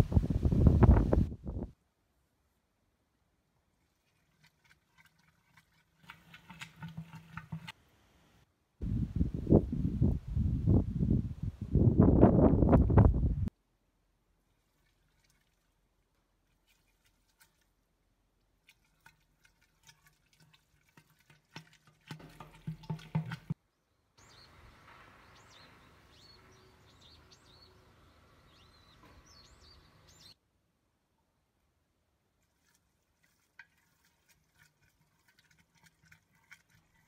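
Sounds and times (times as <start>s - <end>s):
faint outdoor air: 0.0s - 37.0s
wooden spoon crunching grain mash: 3.9s - 7.8s, 18.6s - 23.6s, 32.4s - 37.0s
birds chirping: 23.7s - 30.4s.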